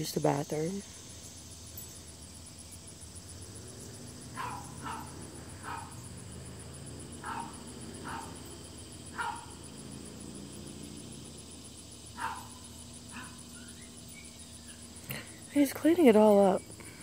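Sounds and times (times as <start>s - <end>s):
dog barking: 4.3s - 6.0s, 7.2s - 8.4s, 9.1s - 9.6s, 12.2s - 13.4s.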